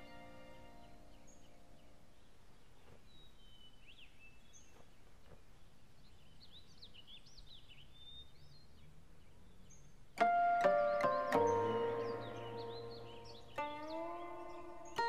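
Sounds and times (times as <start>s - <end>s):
birds chirping and whistling: 9.6s - 15.0s.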